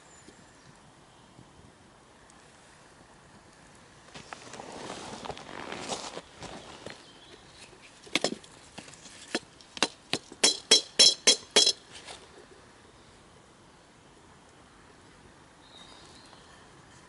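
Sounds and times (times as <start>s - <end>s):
wooden stick tapping metal kettle: 9.3s - 11.8s.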